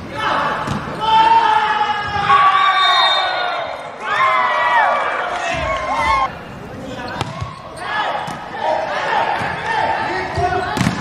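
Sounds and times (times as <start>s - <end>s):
young players yelling in celebration: 1.0s - 6.3s.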